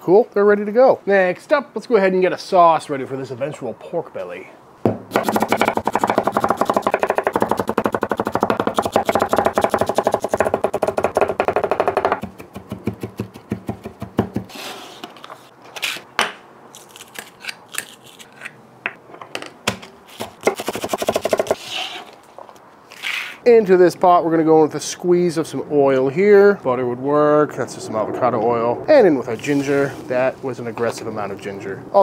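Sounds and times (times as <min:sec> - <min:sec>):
knife chopping on wooden board: 0:04.9 - 0:14.5.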